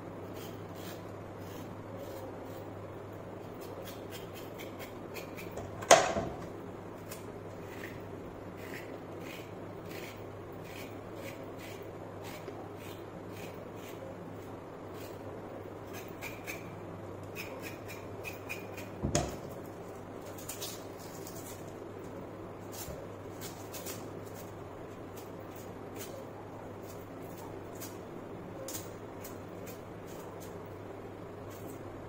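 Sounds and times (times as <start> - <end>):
steady low hum: 0.0 - 32.0
knife scraping carrot skin: 0.2 - 2.8, 3.4 - 5.7, 7.0 - 14.1, 14.9 - 19.0, 19.7 - 21.7, 22.6 - 26.2, 26.8 - 30.6.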